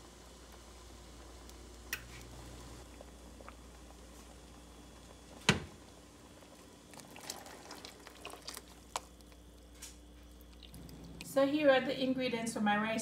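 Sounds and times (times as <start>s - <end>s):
liquid pouring into a pot: 2.9s - 11.3s.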